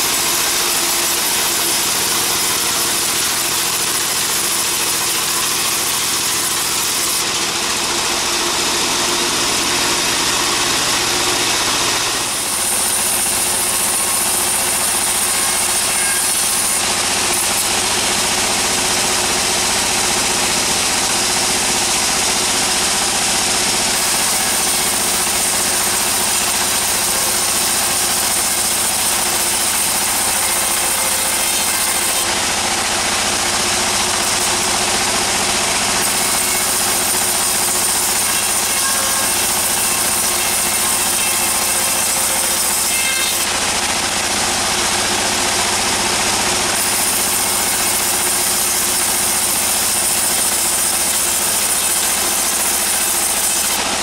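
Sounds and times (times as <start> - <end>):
band saw machine running: 0.0 - 54.0.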